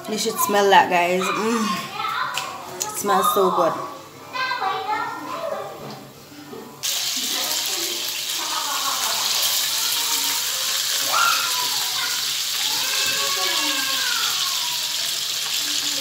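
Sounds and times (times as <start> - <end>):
fish sizzling in hot oil: 6.8 - 16.0.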